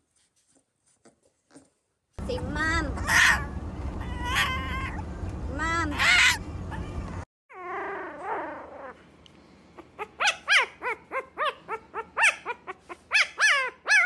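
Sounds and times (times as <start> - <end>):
puppy crying: 3.0 - 5.1, 5.9 - 9.0, 9.8 - 14.0
puppy yelping: 3.0 - 5.1, 5.9 - 9.0, 9.8 - 14.0.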